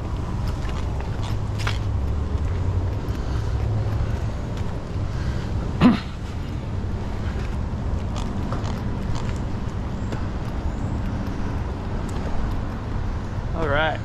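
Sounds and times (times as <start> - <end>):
footsteps on concrete: 0.0 - 5.1, 6.9 - 13.3
city traffic rumble: 0.0 - 14.0
short rising grunt: 5.8 - 6.2.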